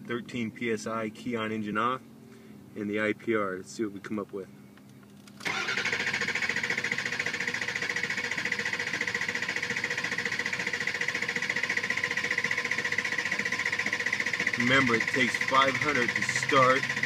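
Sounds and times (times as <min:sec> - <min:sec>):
diesel engine cranking: 0:05.2 - 0:17.0.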